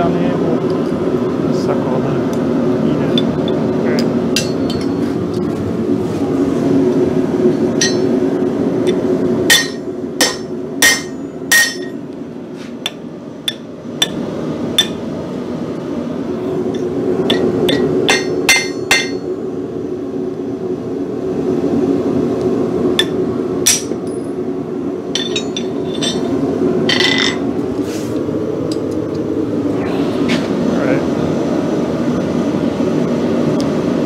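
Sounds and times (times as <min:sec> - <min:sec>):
metal tools striking an anvil: 0:07.8 - 0:08.1, 0:09.5 - 0:12.0, 0:14.8 - 0:15.0, 0:17.3 - 0:19.2, 0:23.0 - 0:24.2, 0:25.2 - 0:26.3.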